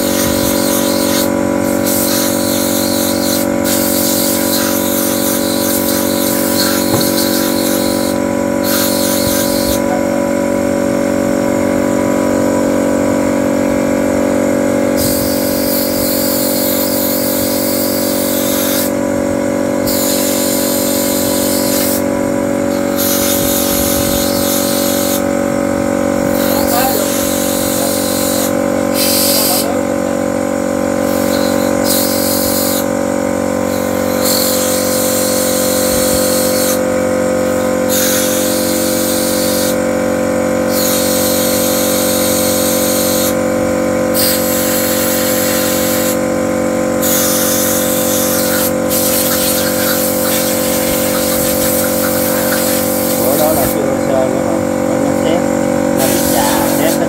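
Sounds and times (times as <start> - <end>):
workshop machinery drone: 0.0 - 57.0
hissing noise: 48.4 - 53.8.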